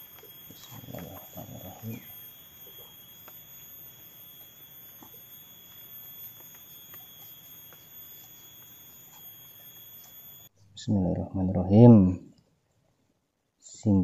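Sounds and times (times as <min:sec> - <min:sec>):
forest insects droning: 0:00.0 - 0:10.5.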